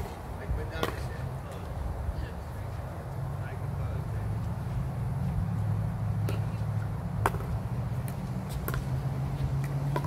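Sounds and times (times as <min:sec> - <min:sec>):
paddles hitting pickleball: 0:00.0 - 0:01.7, 0:06.2 - 0:10.0.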